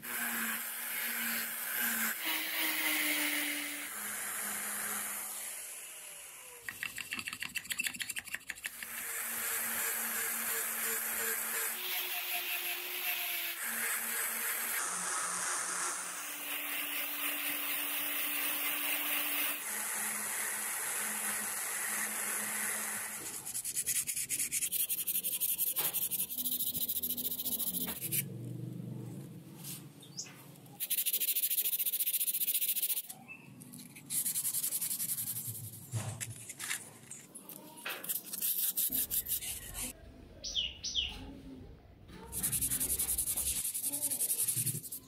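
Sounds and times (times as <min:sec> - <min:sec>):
sandpaper rubbing on wood: 0:23.2 - 0:28.2, 0:30.8 - 0:33.1, 0:33.8 - 0:36.5, 0:37.9 - 0:39.9, 0:42.3 - 0:45.0.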